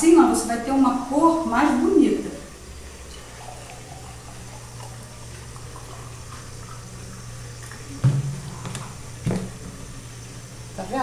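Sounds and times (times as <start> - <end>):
juice pouring into glass: 2.8 - 9.6
sharp knocks: 8.0 - 9.7.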